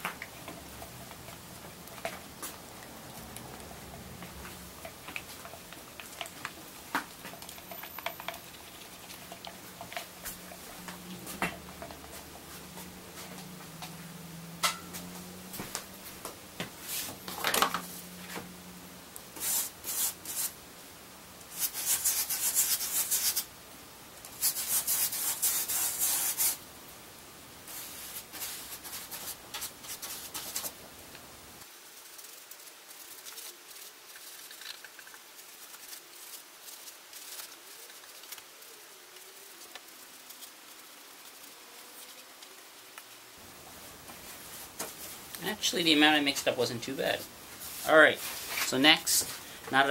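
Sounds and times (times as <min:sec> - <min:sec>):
paintbrush scrubbing resin: 0:00.3 - 0:13.6, 0:19.3 - 0:20.6, 0:21.5 - 0:23.5, 0:24.4 - 0:26.6, 0:27.7 - 0:30.8, 0:31.8 - 0:42.1, 0:44.2 - 0:49.4.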